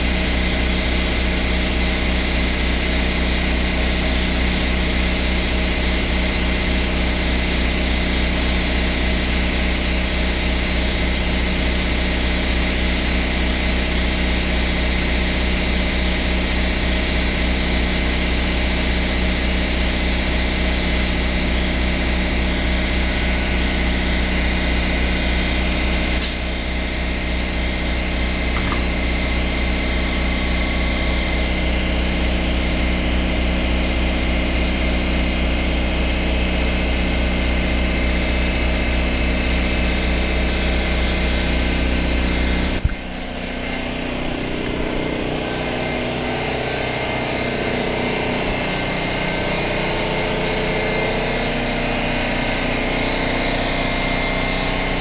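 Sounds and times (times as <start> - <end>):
paint spray gun hissing: 0.0 - 21.2, 26.2 - 26.5, 42.8 - 50.3
air compressor running: 0.0 - 55.0.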